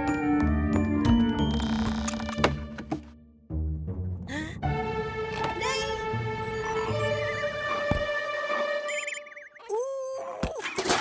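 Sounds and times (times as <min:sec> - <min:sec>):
cartoon music with wavering tone: 0:05.4 - 0:09.8.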